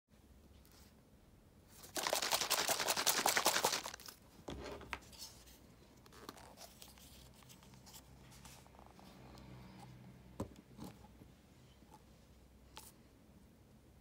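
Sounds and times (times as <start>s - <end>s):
plastic bottle rattling and sloshing: 1.8s - 4.2s.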